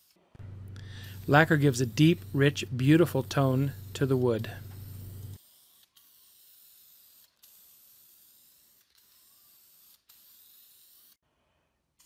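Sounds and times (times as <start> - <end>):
aerosol can spraying hiss: 0.8 - 5.4.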